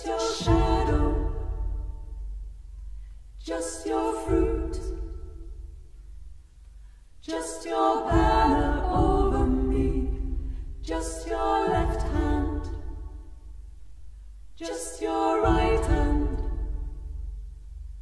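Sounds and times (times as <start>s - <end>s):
female trio singing in harmony: 0.0s - 2.2s, 3.2s - 5.7s, 7.2s - 13.6s, 14.5s - 17.4s.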